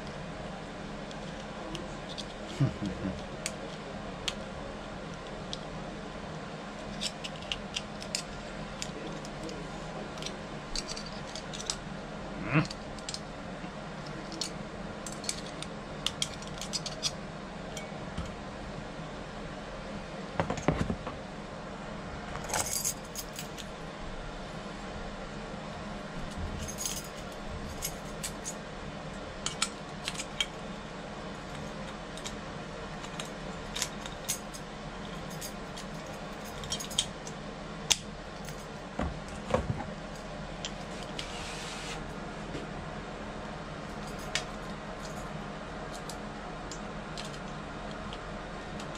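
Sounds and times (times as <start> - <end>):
low hum: 0.0 - 48.9
keys jangling: 26.6 - 28.6, 33.0 - 37.1.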